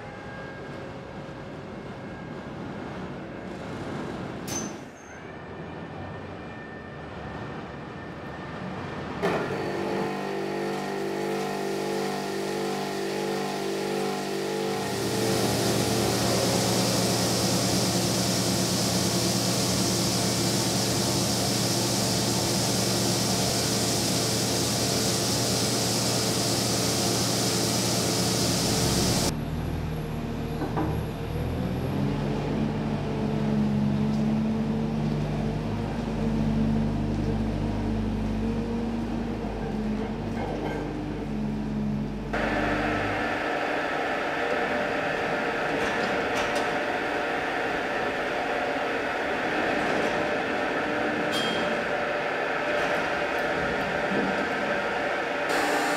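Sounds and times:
forklift engine running: 0:09.2 - 0:40.4, 0:41.1 - 0:55.9
saw motor humming: 0:42.4 - 0:55.9.

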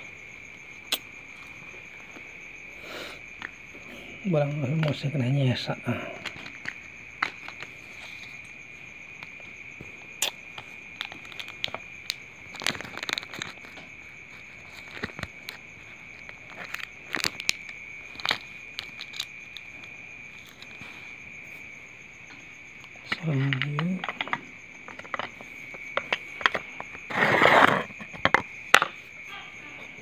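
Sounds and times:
high insect trill: 0:00.0 - 0:30.0
plastic wallet crinkling: 0:10.8 - 0:21.0.

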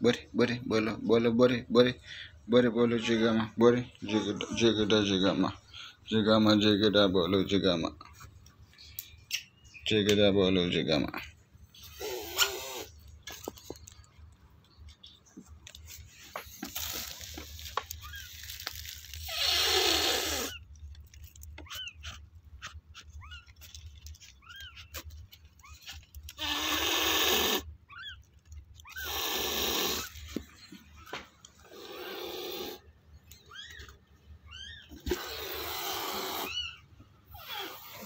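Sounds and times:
cat hissing: 0:11.8 - 0:13.0, 0:19.2 - 0:20.6, 0:26.4 - 0:27.7, 0:28.9 - 0:30.2, 0:31.6 - 0:32.8, 0:34.9 - 0:36.6, 0:37.3 - 0:38.0
cat squeaking: 0:11.8 - 0:13.0, 0:19.2 - 0:20.7, 0:21.6 - 0:23.7, 0:24.3 - 0:30.2, 0:33.4 - 0:38.0.

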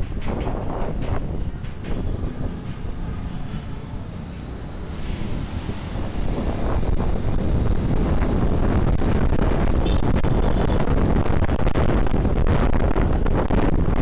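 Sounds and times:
tyre noise on road: 0:00.0 - 0:14.0
wind buffeting microphone: 0:00.0 - 0:14.0
scooter engine running: 0:00.4 - 0:09.2.

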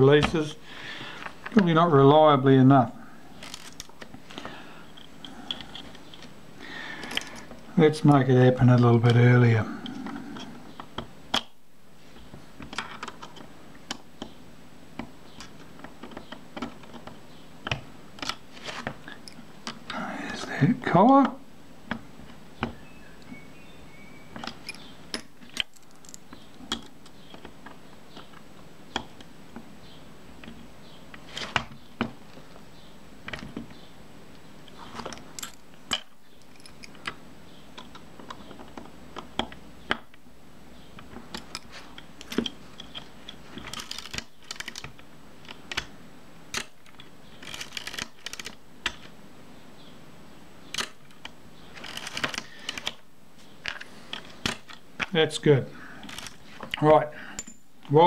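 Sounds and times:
small metal parts clicking: 0:07.0 - 0:07.5, 0:24.4 - 0:27.5, 0:35.0 - 0:37.2, 0:41.3 - 0:44.9, 0:46.5 - 0:49.1.

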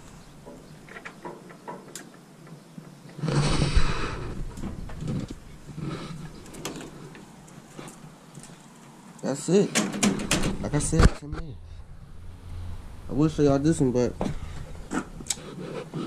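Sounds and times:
loud scraping rustle: 0:03.0 - 0:08.7.

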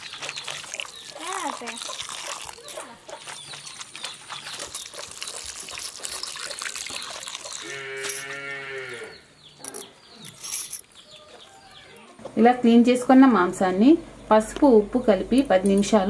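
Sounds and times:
wet crackle of salt rubbing: 0:00.0 - 0:08.6
cow mooing: 0:07.6 - 0:09.2.

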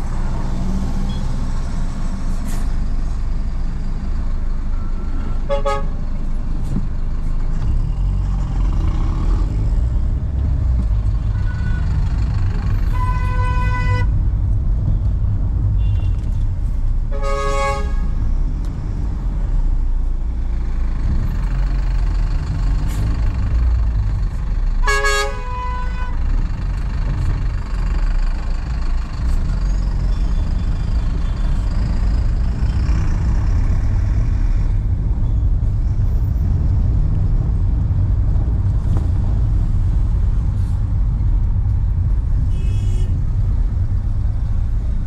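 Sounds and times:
car engine and road rumble: 0:00.0 - 0:45.0
car horn honking: 0:04.8 - 0:06.0, 0:12.9 - 0:14.1, 0:15.8 - 0:16.2, 0:17.1 - 0:18.1, 0:24.8 - 0:26.2, 0:42.5 - 0:43.2.

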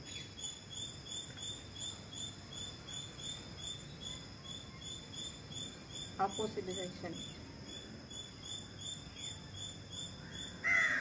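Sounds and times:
cricket chirping: 0:00.0 - 0:11.0
low background noise: 0:00.0 - 0:11.0.

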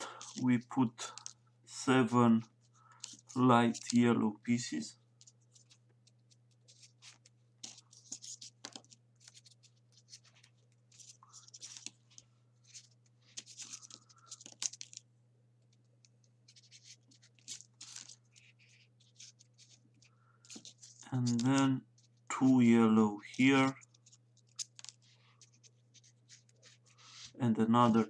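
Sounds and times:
low steady hum: 0:00.0 - 0:28.0
paper rustling and scraping: 0:02.8 - 0:04.0, 0:05.2 - 0:15.0, 0:16.4 - 0:22.2, 0:23.3 - 0:28.0.

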